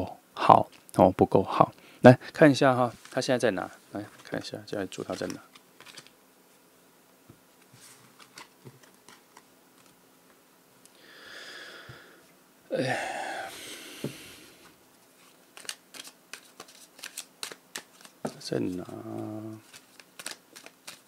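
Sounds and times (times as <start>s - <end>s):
person breathing in and sighing: 11.0s - 14.7s.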